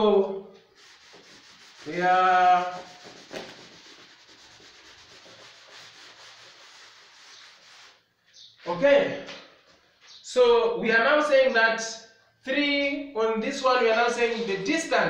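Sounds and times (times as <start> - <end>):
scratchy rubbing on chalkboard: 0.7 - 8.7
person speaking: 10.2 - 15.0.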